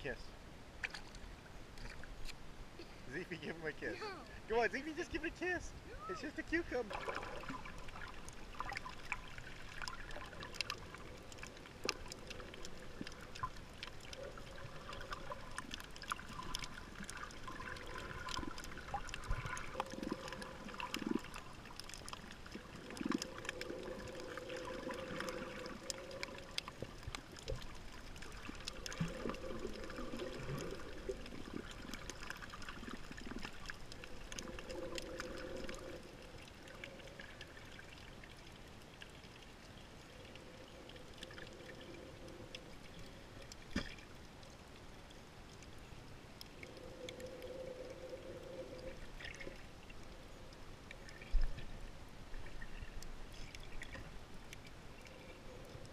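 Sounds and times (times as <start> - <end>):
underwater sloshing and bubbling: 0.0 - 55.9
crackle of small clicks: 0.8 - 3.0, 6.9 - 55.9.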